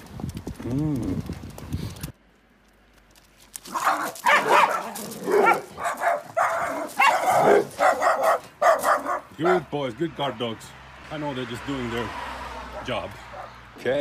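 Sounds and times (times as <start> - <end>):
dogs barking: 3.7 - 9.7, 12.6 - 13.7.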